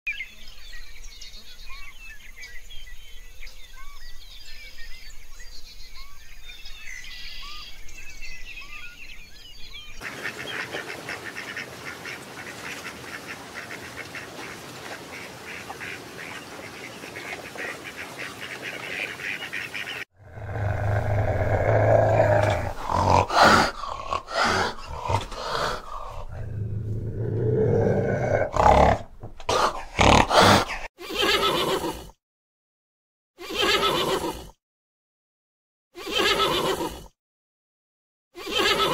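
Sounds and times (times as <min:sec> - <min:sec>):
bird chirps: 0:00.1 - 0:10.7
large animal roaring and grunting: 0:20.2 - 0:30.9.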